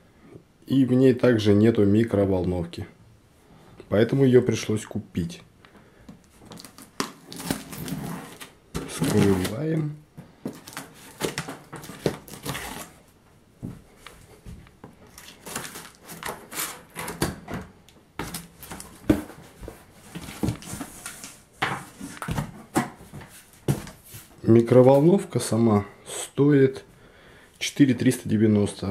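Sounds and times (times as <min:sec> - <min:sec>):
cardboard box being opened: 0:06.6 - 0:09.6, 0:10.5 - 0:13.0.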